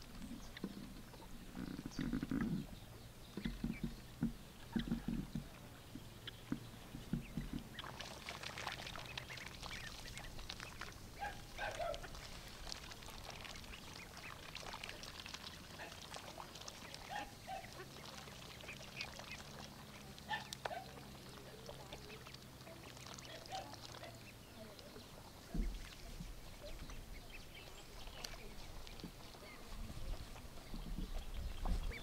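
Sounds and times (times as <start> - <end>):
low thumps: 0.0 - 7.8
ducks dabbling in water: 0.0 - 32.0
ducks quacking: 0.0 - 32.0.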